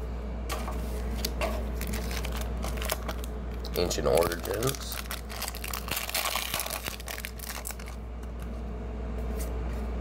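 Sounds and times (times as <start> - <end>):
steady low hum: 0.0 - 10.0
foil wrapper crinkling and tearing: 1.2 - 8.0.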